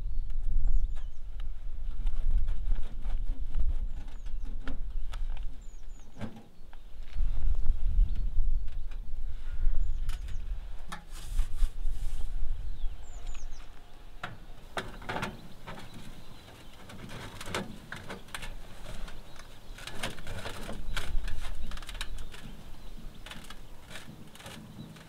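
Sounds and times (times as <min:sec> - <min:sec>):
bird chirps: 0:11.8 - 0:25.0.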